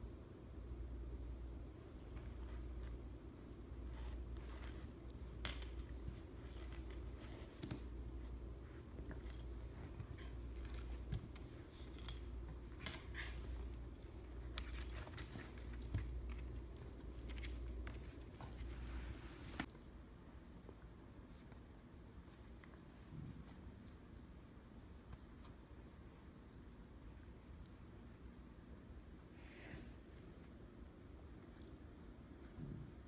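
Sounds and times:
low steady hum: 0.0 - 33.0
dog collar tags jingling: 9.0 - 19.7.

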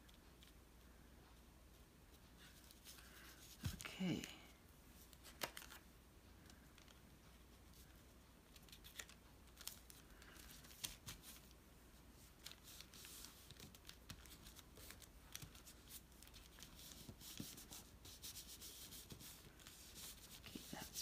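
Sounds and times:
paper rustling: 5.0 - 5.8, 8.5 - 11.6, 12.2 - 21.0.

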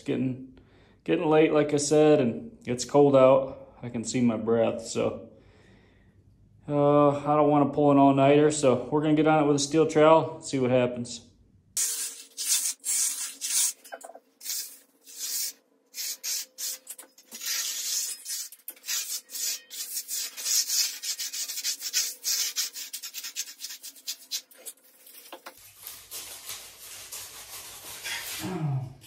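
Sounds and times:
trowel scraping concrete: 11.8 - 25.5.

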